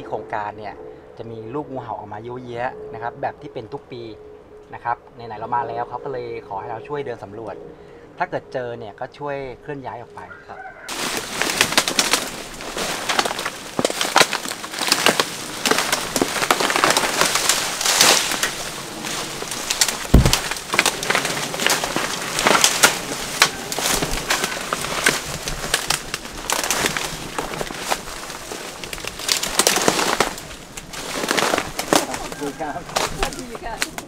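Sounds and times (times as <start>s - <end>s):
branches and leaves crackling: 9.2s - 34.0s
dull thump: 20.1s - 20.6s.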